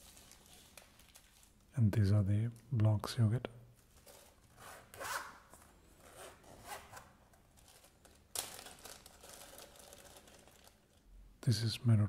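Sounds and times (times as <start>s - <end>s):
plastic bag crinkling: 0.0s - 1.7s, 7.5s - 11.1s.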